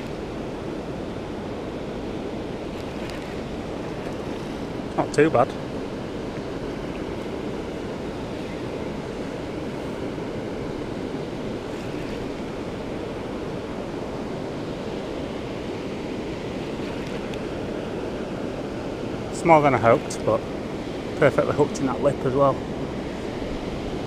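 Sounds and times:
water rushing over weir: 0.0s - 24.0s
wind on microphone: 5.9s - 19.4s.

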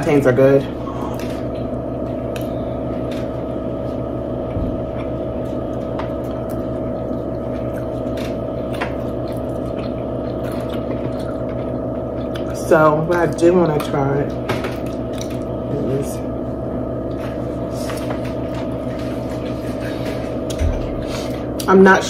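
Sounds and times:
electrical hum: 0.0s - 22.0s
chewing: 4.9s - 12.6s.

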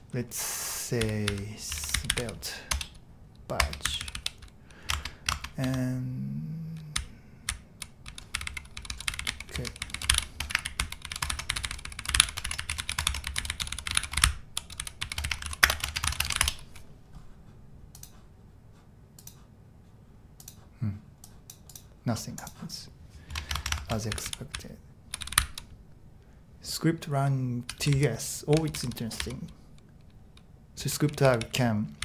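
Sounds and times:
keyboard typing: 1.0s - 3.0s, 3.6s - 6.0s, 6.7s - 16.8s, 23.3s - 25.7s, 27.7s - 32.0s.

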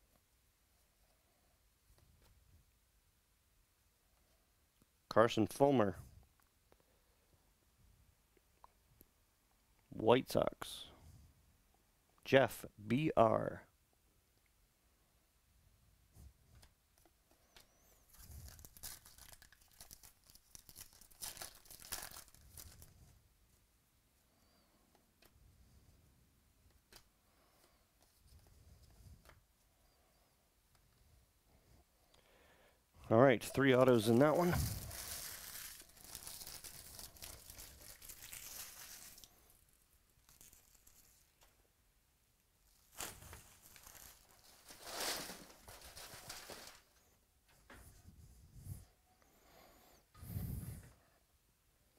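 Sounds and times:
cards and packaging rustling: 17.4s - 23.0s, 33.5s - 41.5s, 42.7s - 47.0s
foil wrapper tearing and crinkling: 18.1s - 22.9s, 34.4s - 39.5s, 40.2s - 41.3s, 42.8s - 47.0s.

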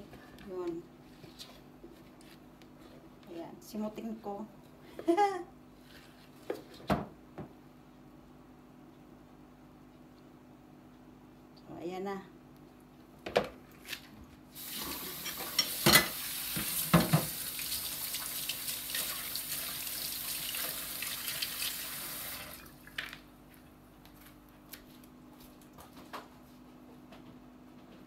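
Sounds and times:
tap running into steel sink: 15.4s - 17.4s.

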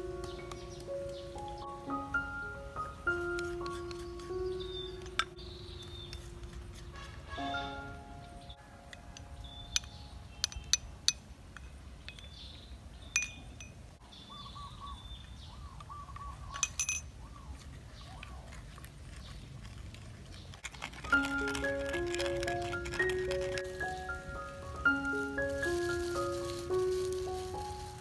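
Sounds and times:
spoon clinking against bowls: 9.0s - 12.4s, 13.2s - 13.8s, 16.5s - 17.1s
mallet percussion music: 21.2s - 26.9s.

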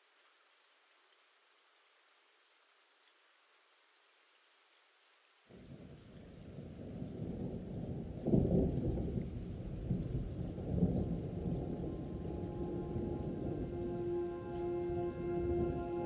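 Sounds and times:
muffled thunder rumble: 5.6s - 16.0s.

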